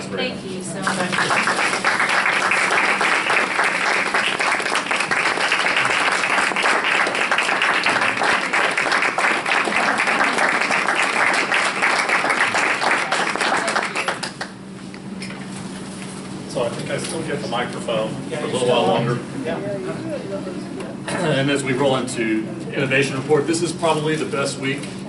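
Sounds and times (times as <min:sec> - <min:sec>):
crowd applauding: 0:00.9 - 0:14.6.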